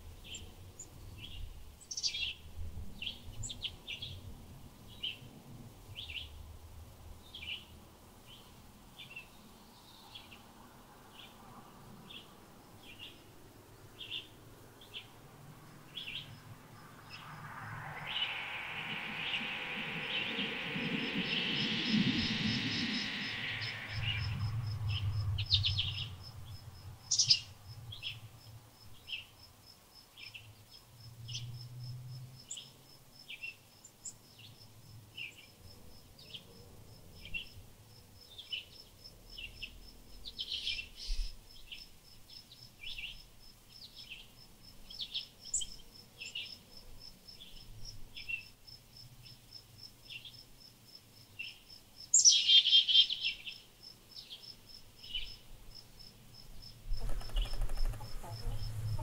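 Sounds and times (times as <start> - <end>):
songbird chirping: 7.2 - 29.4, 51.4 - 59.0
insect pulsing: 15.6 - 26.6, 56.3 - 59.0.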